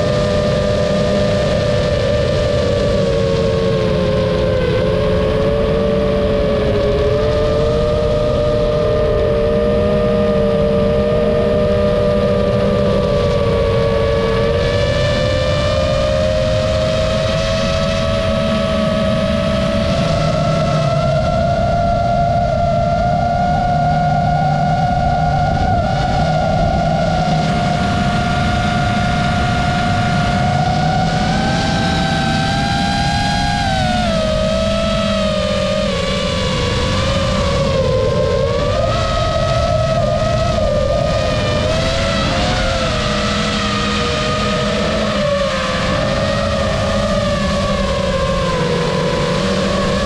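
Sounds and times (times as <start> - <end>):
drone propellers whining: 0.0 - 50.0.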